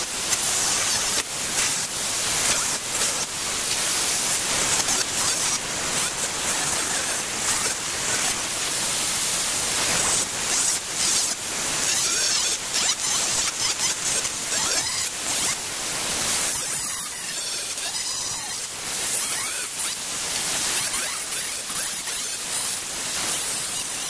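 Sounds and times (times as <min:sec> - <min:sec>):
angle grinder grinding metal: 0:00.3 - 0:08.8, 0:09.7 - 0:24.0.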